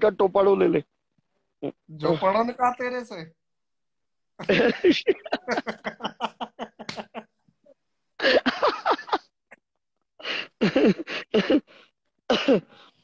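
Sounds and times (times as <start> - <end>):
men laughing: 4.4 - 7.5, 8.2 - 9.4.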